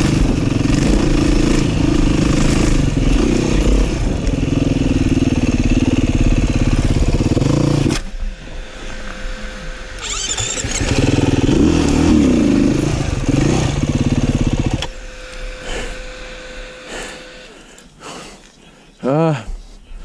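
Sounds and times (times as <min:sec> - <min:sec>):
dirt bike engine revving: 0:00.0 - 0:17.7.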